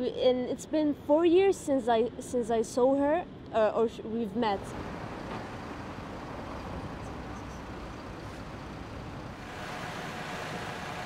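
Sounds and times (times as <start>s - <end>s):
street traffic: 4.2s - 11.0s
buses idling: 4.6s - 11.0s.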